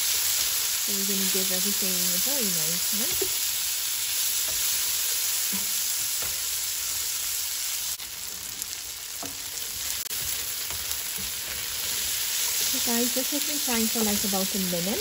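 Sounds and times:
vegetables sizzling in hot oil: 0.0 - 15.0
spatula stirring in pan: 9.2 - 14.5.

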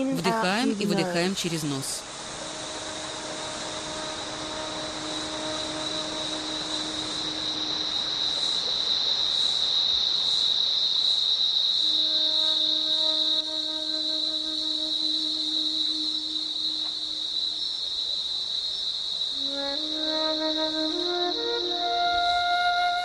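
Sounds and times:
high-pitched insect chorus: 0.0 - 23.0
soft background music: 2.0 - 8.3.

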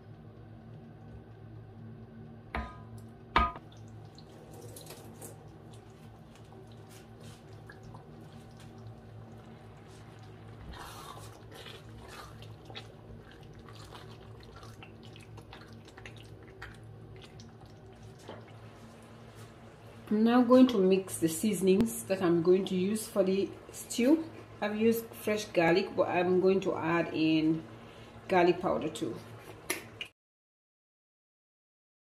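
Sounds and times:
steady low hum: 0.0 - 30.0
stew bubbling: 3.4 - 19.8
wet stirring sounds: 3.4 - 20.9.

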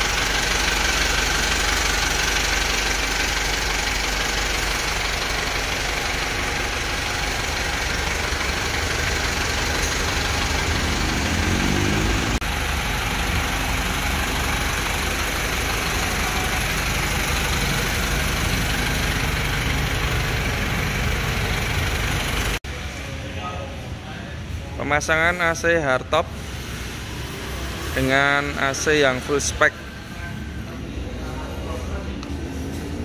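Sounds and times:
engine idling hum: 0.0 - 23.0.

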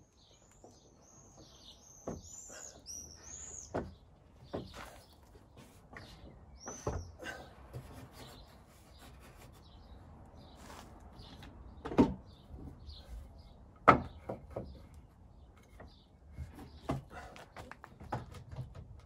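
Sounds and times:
knocks on timber frame: 13.8 - 14.8.

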